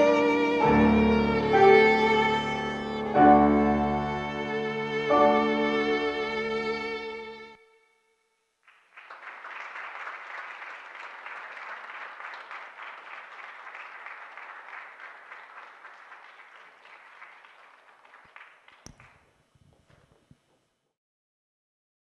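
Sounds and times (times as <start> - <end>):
audience applauding: 8.6 - 19.3.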